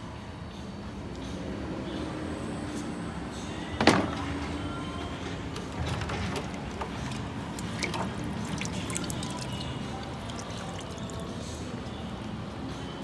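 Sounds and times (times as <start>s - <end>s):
water splashing in plastic tub: 5.8s - 11.4s.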